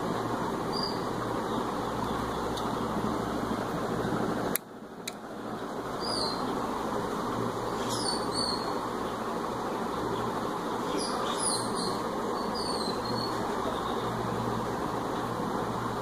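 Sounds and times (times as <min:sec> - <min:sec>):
bird chirping: 0:00.7 - 0:02.9, 0:06.0 - 0:06.5, 0:07.7 - 0:08.8, 0:10.8 - 0:14.2.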